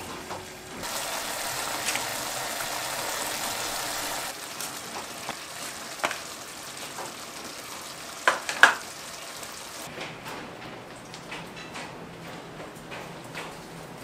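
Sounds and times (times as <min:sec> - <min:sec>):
food sizzling in a pot: 0:00.8 - 0:09.9.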